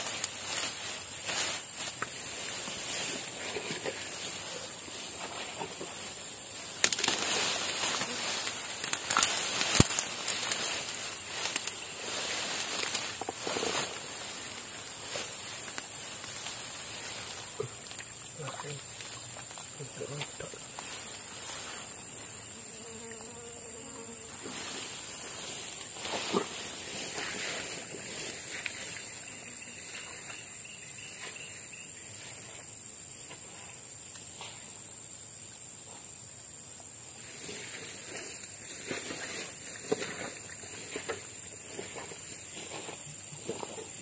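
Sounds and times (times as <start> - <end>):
rustling in dry grass and leaves: 0.0 - 22.7, 24.0 - 34.7, 37.1 - 44.0
insects singing: 0.0 - 44.0
flying insect buzzing past: 20.8 - 32.6.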